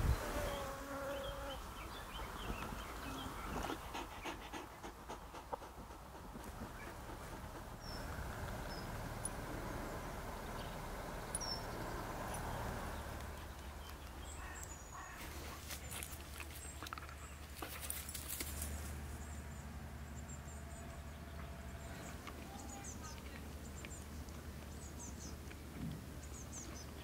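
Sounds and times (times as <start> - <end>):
dog panting: 3.4 - 8.2.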